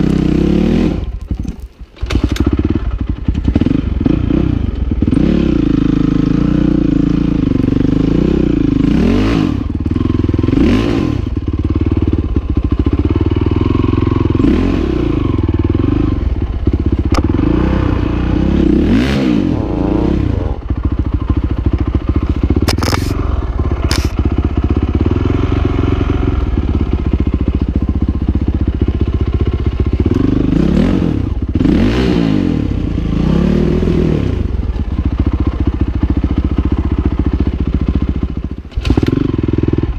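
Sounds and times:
motorcycle engine revving: 0.0s - 39.9s
bike clattering over rocks: 1.2s - 2.3s.

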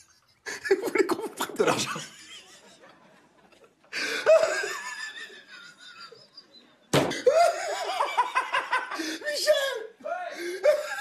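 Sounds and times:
mocking laughter: 0.0s - 9.2s
sharp slap: 6.9s - 7.2s.

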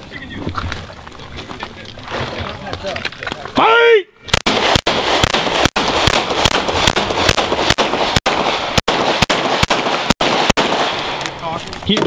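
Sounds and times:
pistol firing rapid shots: 4.3s - 11.2s.

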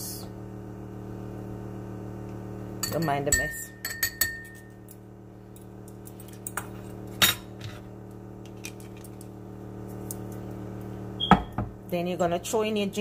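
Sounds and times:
spoon and glass bottle clinking: 2.8s - 4.8s.

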